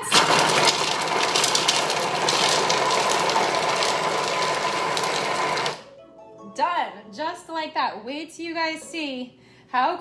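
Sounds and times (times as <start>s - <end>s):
food processor blade whirring: 0.0s - 5.8s.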